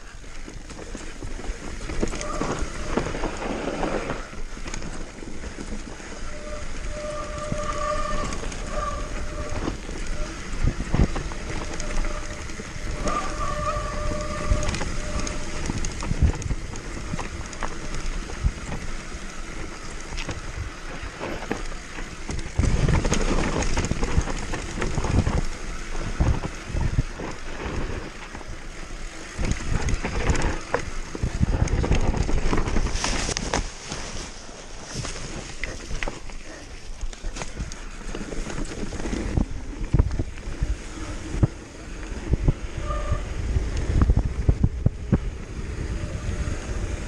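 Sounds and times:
bike rattling and banging: 0.0s - 47.0s
wind on microphone: 5.9s - 33.8s, 37.4s - 47.0s.

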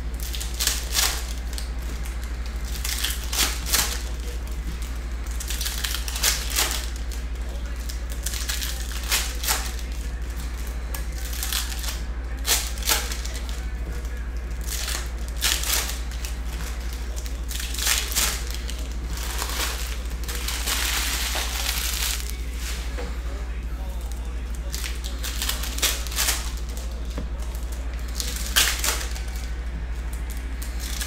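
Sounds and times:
steady low hum: 0.0s - 31.0s
foil packs torn and crinkled: 0.1s - 23.1s, 23.8s - 31.0s.

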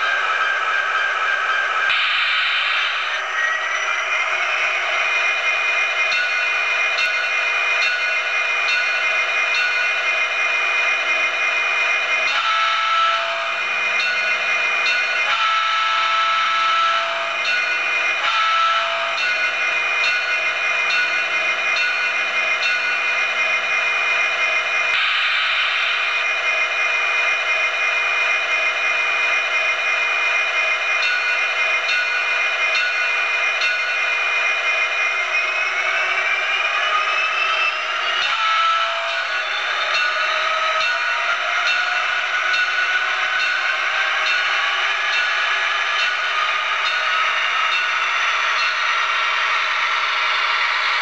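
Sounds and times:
model locomotive engine sound: 0.0s - 51.0s
model train diesel idle sound: 19.1s - 35.9s.

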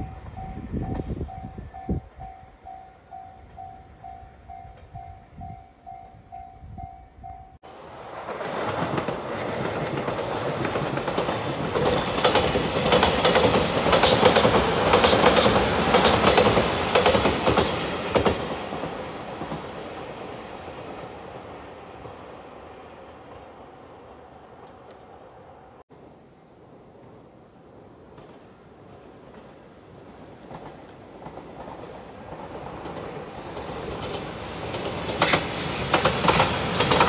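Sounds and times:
train rumbling past: 0.0s - 37.0s
wheels clacking over rail joints: 7.8s - 20.0s, 28.1s - 37.0s.

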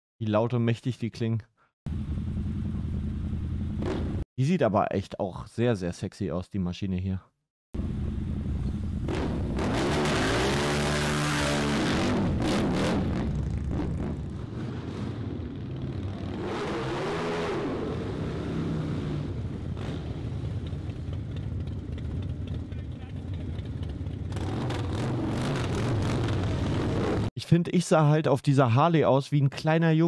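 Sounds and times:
motorcycle engine revving: 1.9s - 4.2s, 7.8s - 27.3s
motorcycle engines rumbling: 1.9s - 4.2s, 7.8s - 27.3s.

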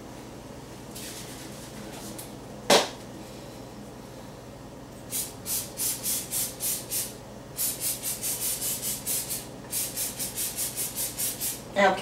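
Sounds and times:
cooking spray hissing: 5.1s - 11.7s.

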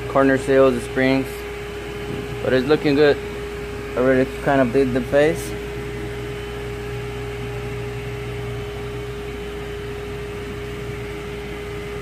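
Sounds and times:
machine hum with steady tone: 0.0s - 12.0s.

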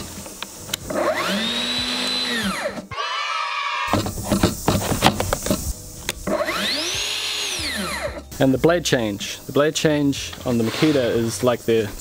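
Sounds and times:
high whirring: 0.7s - 4.1s, 6.2s - 8.2s
saw motor whine: 0.9s - 3.9s, 6.3s - 8.2s.

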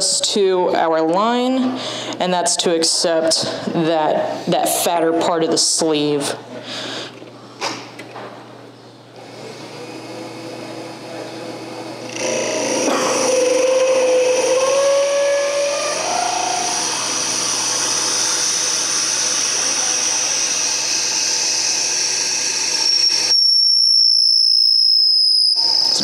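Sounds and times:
drill bit boring into wood: 9.3s - 26.0s
lathe high-pitched whine: 9.3s - 26.0s.

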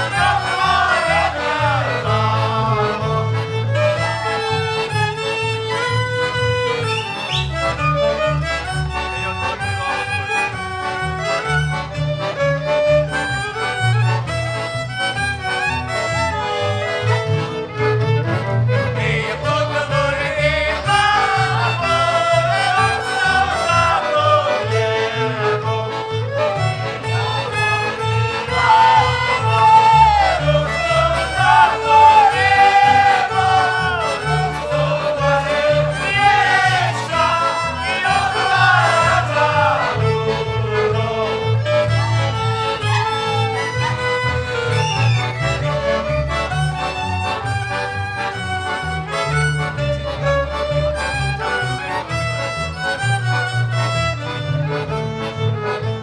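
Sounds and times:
group of voices singing: 0.0s - 4.7s, 18.9s - 26.1s, 28.4s - 42.0s
accordions: 0.0s - 56.0s
double bass: 0.0s - 56.0s
fiddles: 0.0s - 56.0s.

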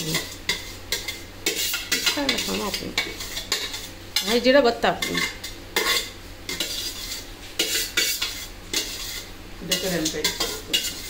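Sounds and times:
spatula scraping pan: 0.0s - 11.0s.

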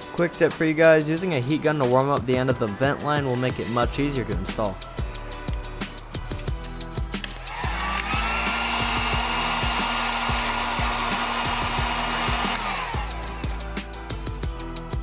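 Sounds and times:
heat gun fan whine: 7.2s - 13.8s.

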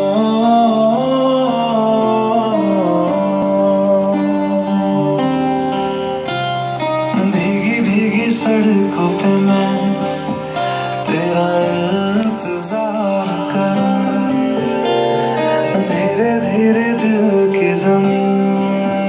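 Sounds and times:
guitar music: 0.0s - 19.0s
person singing: 0.0s - 19.0s.

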